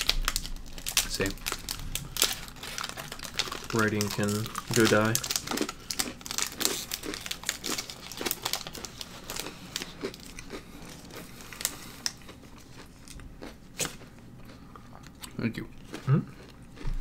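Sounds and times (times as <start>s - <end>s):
foil wrapper crinkling: 0.0s - 12.7s.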